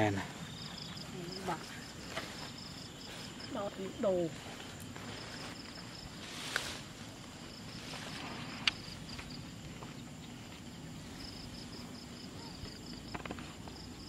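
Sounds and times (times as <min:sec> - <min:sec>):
insects chirping trill: 0:00.0 - 0:14.0
rustle: 0:00.0 - 0:14.0.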